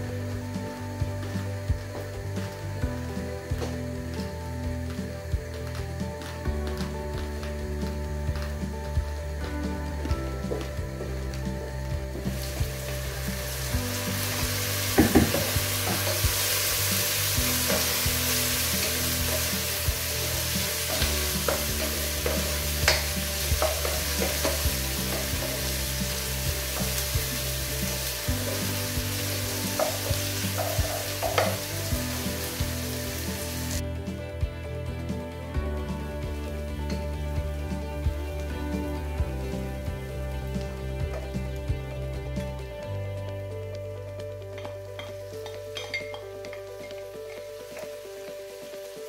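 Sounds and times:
onions sizzling in oil: 0:00.0 - 0:33.8, 0:44.5 - 0:49.0
wooden spoon knocking pot: 0:44.5 - 0:48.0.

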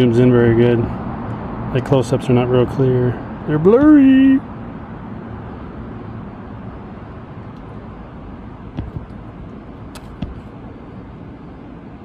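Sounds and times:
low outdoor rush: 0:00.0 - 0:12.0
light clicks and knocks: 0:08.8 - 0:09.2, 0:09.9 - 0:10.5.

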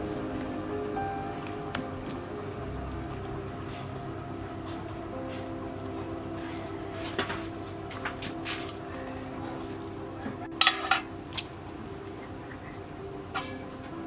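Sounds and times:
metal clinking on a pot: 0:10.5 - 0:11.1.

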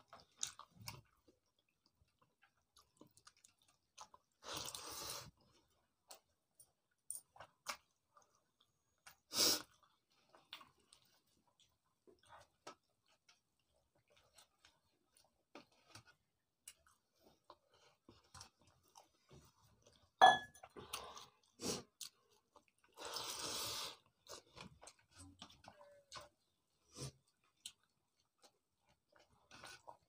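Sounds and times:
person chewing: 0:00.0 - 0:30.0
metal pot clinking: 0:20.2 - 0:20.6.

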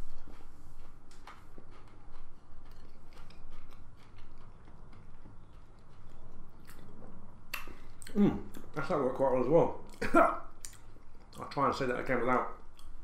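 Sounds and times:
person chewing crackers: 0:00.0 - 0:08.7, 0:10.6 - 0:11.6.

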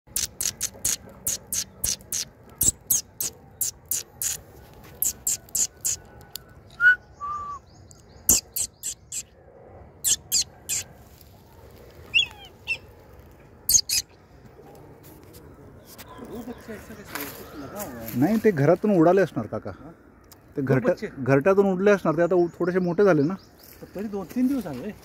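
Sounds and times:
bird chirping: 0:00.1 - 0:04.4, 0:05.0 - 0:06.1, 0:06.7 - 0:09.4, 0:10.0 - 0:10.9, 0:12.1 - 0:13.0, 0:13.7 - 0:14.2
low whistled bird notes: 0:06.7 - 0:09.3.

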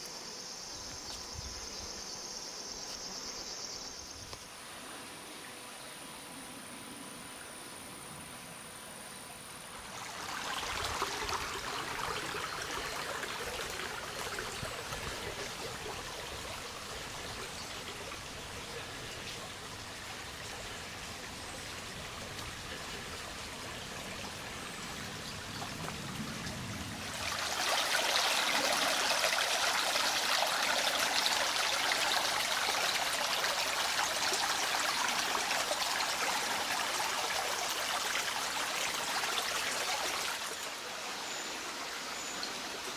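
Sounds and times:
brook trickling and flowing: 0:08.7 - 0:42.9.

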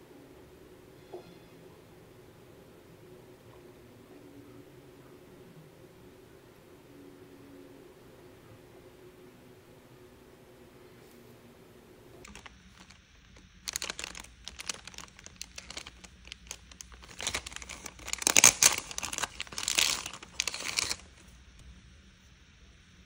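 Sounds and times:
crinkling and crackling: 0:12.2 - 0:21.6.

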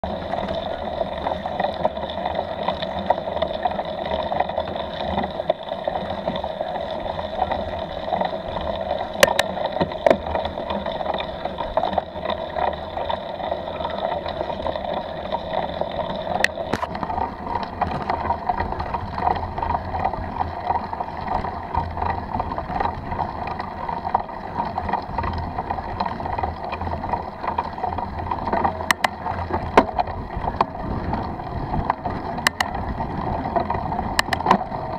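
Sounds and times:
mountain bike riding on dirt: 0:00.0 - 0:34.9
sharp clicks: 0:32.4 - 0:32.7, 0:34.2 - 0:34.6.

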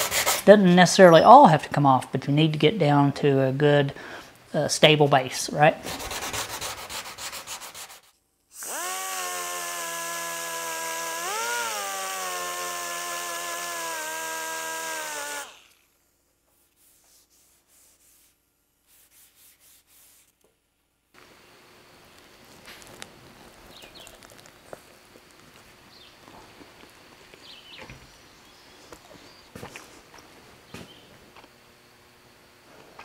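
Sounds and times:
hand sanding on steel: 0:00.0 - 0:00.5, 0:05.8 - 0:08.1, 0:16.5 - 0:20.4
die grinder whining: 0:08.5 - 0:16.0.

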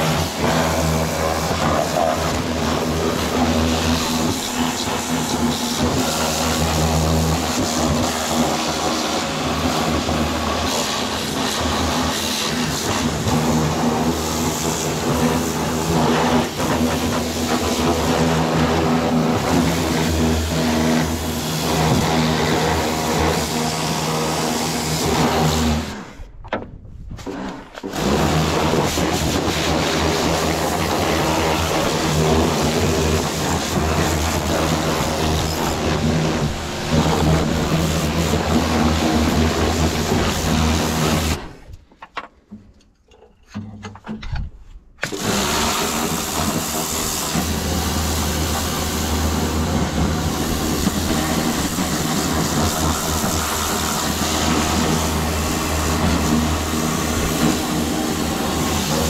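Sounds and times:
pressure washer motor humming: 0:00.0 - 0:26.2, 0:27.3 - 0:41.5, 0:45.0 - 0:59.0
water jet hissing: 0:45.1 - 0:59.0.

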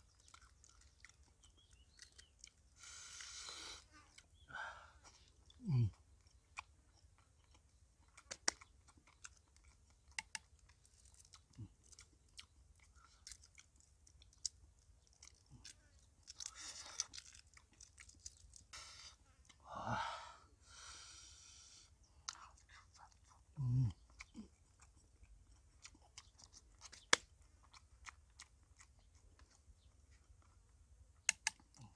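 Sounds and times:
eggshells cracking and peeling: 0:13.2 - 0:18.7, 0:25.8 - 0:27.4.

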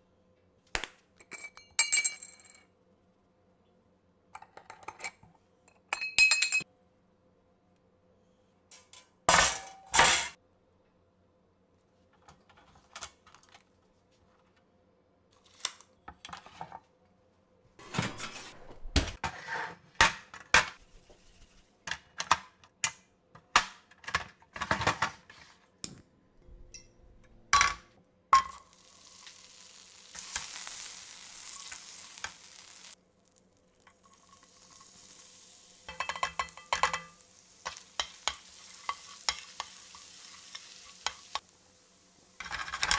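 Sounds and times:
gas stove hissing: 0:28.5 - 0:33.0, 0:34.0 - 0:42.9
garlic sizzling in butter: 0:28.5 - 0:42.5
metal pan clanking: 0:35.9 - 0:40.1.

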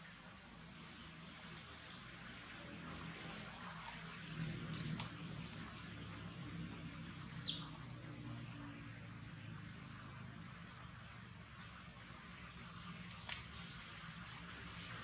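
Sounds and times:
high bird chirps: 0:07.4 - 0:07.8, 0:08.7 - 0:09.1, 0:14.7 - 0:15.0.

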